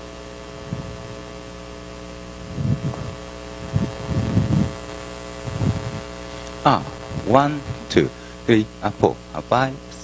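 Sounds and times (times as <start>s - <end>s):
electrical mains hum: 0.0s - 10.0s
soft low thumps: 0.6s - 1.2s, 2.4s - 4.8s, 5.4s - 6.1s.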